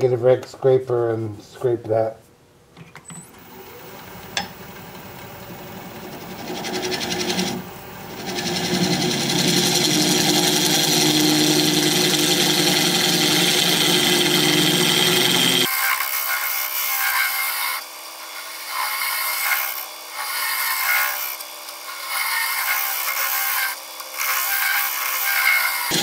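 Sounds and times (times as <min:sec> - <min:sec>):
wood lathe whine: 0:05.8 - 0:26.0.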